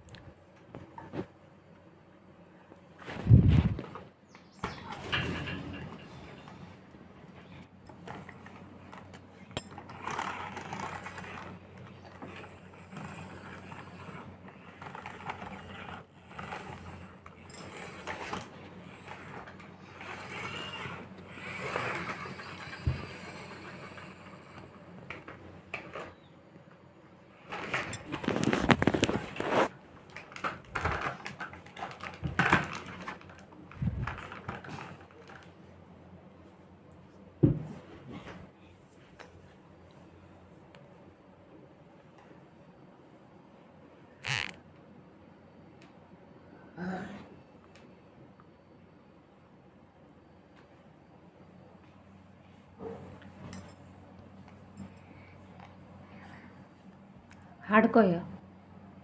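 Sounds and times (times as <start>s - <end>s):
toy car wheels whirring and rattling: 7.8s - 26.2s, 27.4s - 29.7s, 44.2s - 44.6s.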